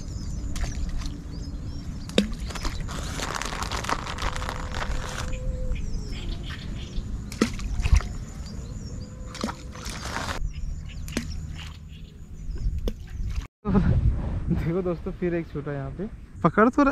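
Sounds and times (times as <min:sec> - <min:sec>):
wind rumble on microphone: 0:00.0 - 0:11.4, 0:12.1 - 0:16.9
small birds chirping: 0:00.0 - 0:13.5.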